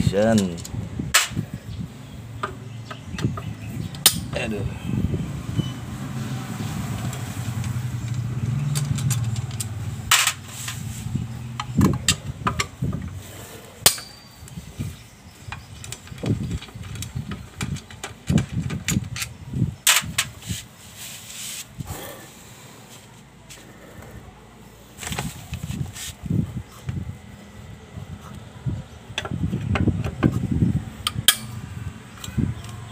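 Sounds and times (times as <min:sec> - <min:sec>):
low engine hum: 0:00.7 - 0:13.6
hand tool clicking on metal bolts: 0:31.0 - 0:31.6.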